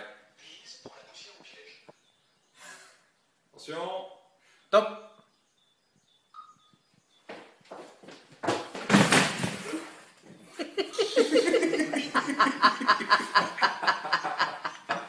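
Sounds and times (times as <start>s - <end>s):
person laughing: 10.6s - 15.0s.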